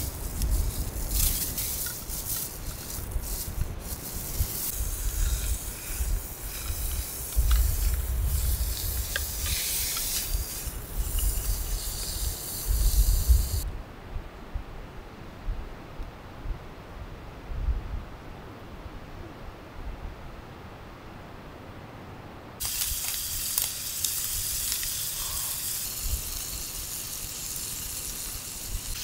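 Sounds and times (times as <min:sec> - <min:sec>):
gas burner hissing: 0:00.0 - 0:13.6, 0:22.6 - 0:29.0
wind rumble on microphone: 0:00.0 - 0:20.4, 0:26.0 - 0:27.0
meat sizzling in a pan: 0:03.8 - 0:13.6, 0:22.6 - 0:29.0.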